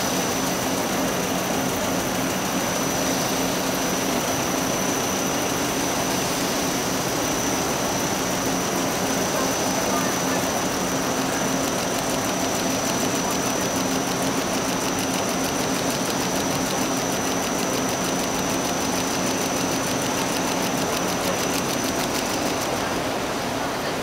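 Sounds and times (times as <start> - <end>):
machine running with whine: 0.0 - 24.0
fast even ticking: 8.2 - 23.0.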